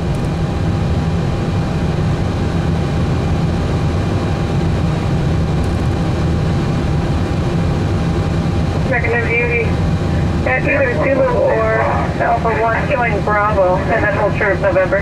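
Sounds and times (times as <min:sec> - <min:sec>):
faint steady whine: 0:00.0 - 0:15.0
low engine rumble: 0:00.0 - 0:15.0.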